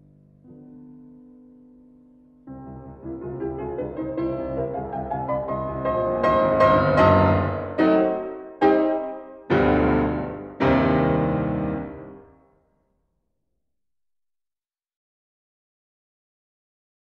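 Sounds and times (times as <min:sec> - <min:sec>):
slow piano chords: 0:00.0 - 0:12.5.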